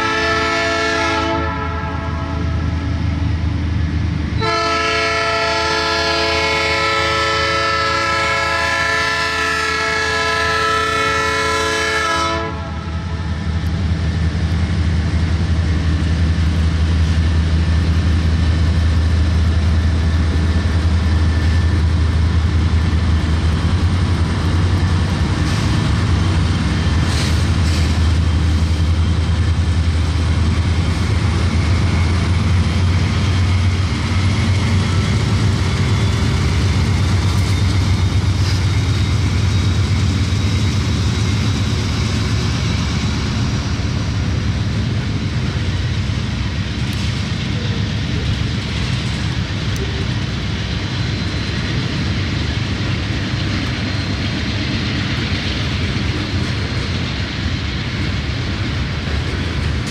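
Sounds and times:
locomotive air horn chord: 0.0s - 2.6s, 4.4s - 13.0s
diesel locomotive engines rumbling: 0.0s - 59.9s.

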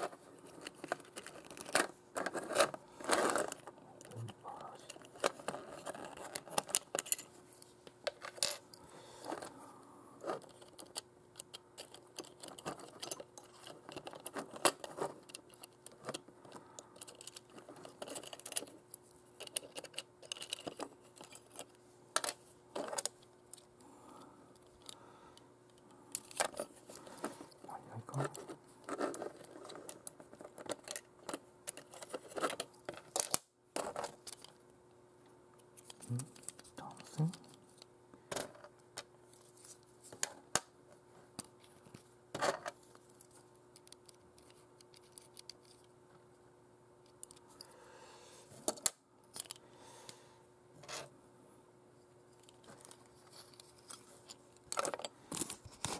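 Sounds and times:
faint steady hum: 0.0s - 55.9s.

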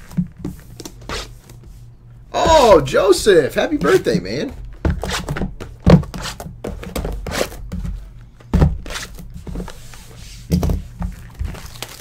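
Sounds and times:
boxes sliding and rustling: 8.9s - 10.5s.

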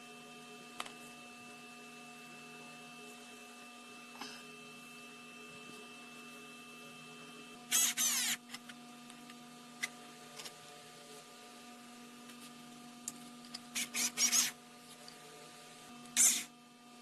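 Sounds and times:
electric screwdriver whirring: 7.7s - 8.5s, 13.8s - 14.6s.

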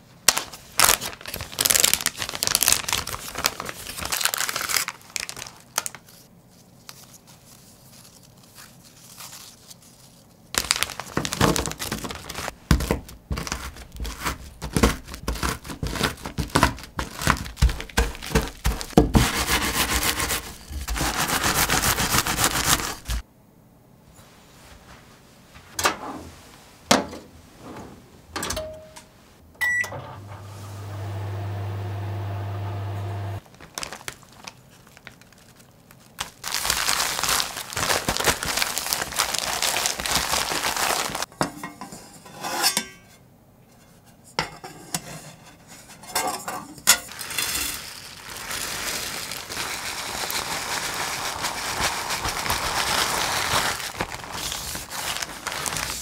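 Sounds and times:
plastic bag crinkling: 0.2s - 23.2s, 33.4s - 41.3s, 47.1s - 56.0s
cookies crunching: 10.6s - 23.2s, 33.4s - 41.3s
microwave oven humming: 28.5s - 33.4s
microwave oven beep: 29.6s - 33.4s.

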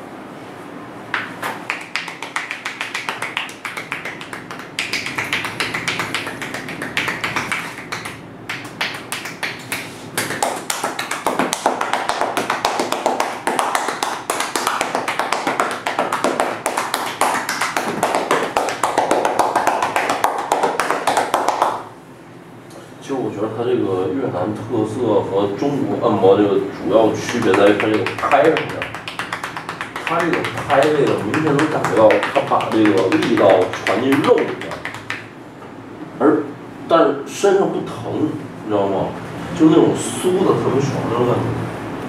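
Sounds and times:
hands patting and slapping legs: 1.1s - 21.8s, 27.2s - 35.3s.

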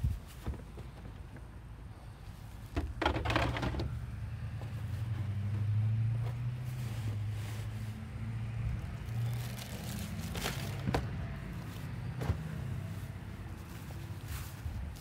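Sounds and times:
car engine humming: 0.8s - 15.0s
footsteps on grass: 9.0s - 15.0s.

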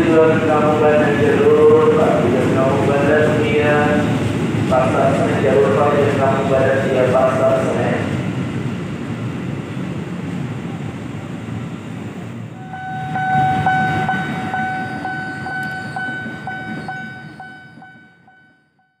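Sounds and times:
electric train rumble: 0.0s - 19.0s
pulsing high-pitched tone: 12.6s - 18.7s.

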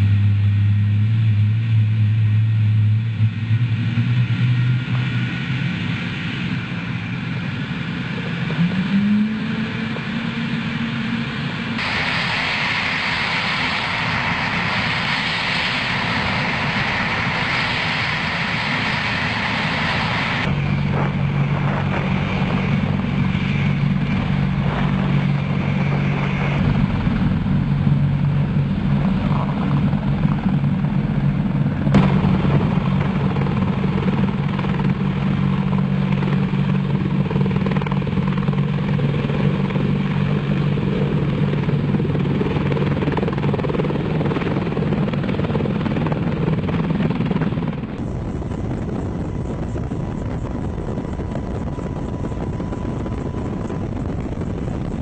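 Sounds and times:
helicopter engines and rotor: 0.0s - 55.0s
hiss: 11.8s - 20.5s.

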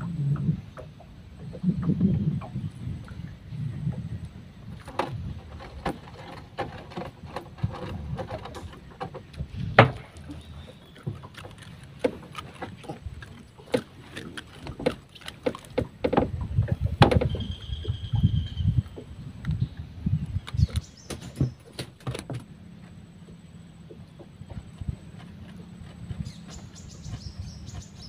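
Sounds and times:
paddle strokes: 0.0s - 19.5s, 20.3s - 28.0s
water sloshing: 0.0s - 28.0s
knocking on boat hull: 15.8s - 17.4s.

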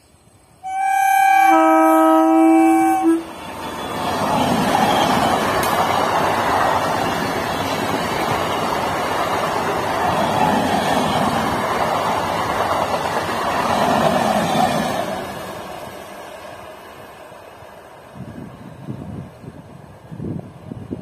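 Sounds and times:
train passing close by: 0.0s - 21.0s
train horn: 0.6s - 3.4s.

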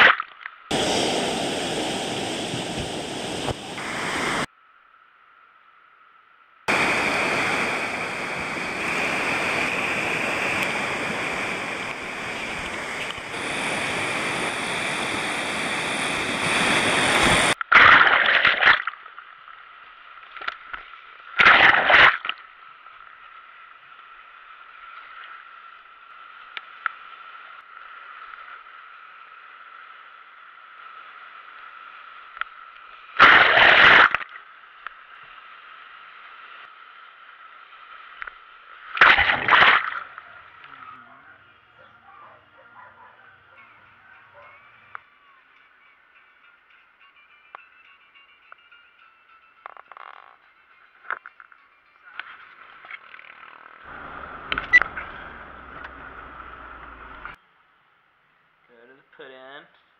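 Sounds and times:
muffled underwater water sound: 0.0s - 4.5s, 6.7s - 43.2s
whitewater rushing: 0.7s - 4.5s, 6.7s - 17.6s
loud splashes: 21.4s - 22.2s, 33.2s - 34.2s, 39.0s - 40.2s.

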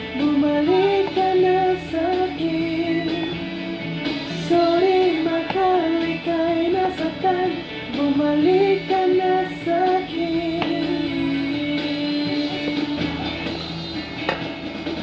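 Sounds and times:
woman singing song: 0.0s - 13.6s.

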